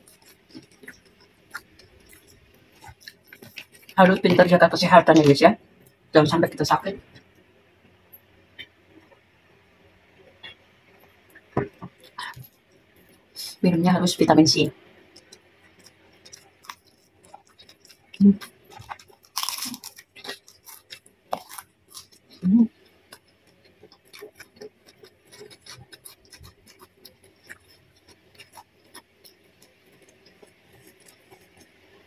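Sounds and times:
person chewing food: 0:00.0 - 0:04.3, 0:15.1 - 0:32.0.

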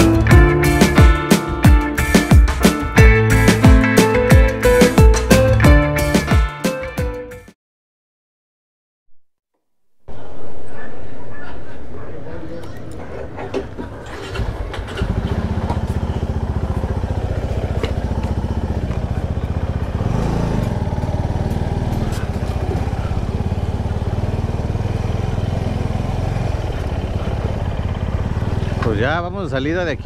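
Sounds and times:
motorcycle engine running: 0:13.5 - 0:30.0.

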